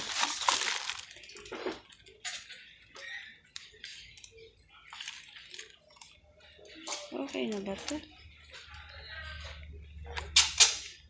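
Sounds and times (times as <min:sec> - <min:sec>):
plastic packaging crinkling: 0:00.0 - 0:02.6, 0:04.8 - 0:06.2, 0:06.8 - 0:08.1.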